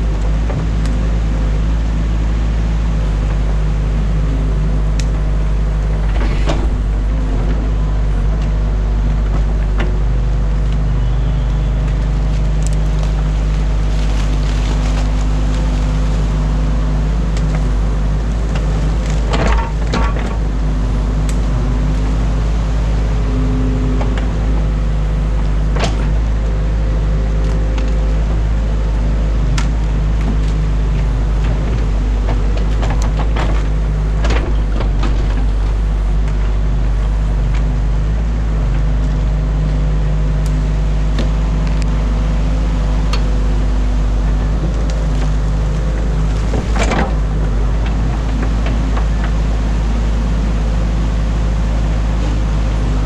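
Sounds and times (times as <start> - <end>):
diesel engine running: 0.0 - 53.0
sharp knocks and cracks: 18.4 - 20.5, 31.4 - 35.5.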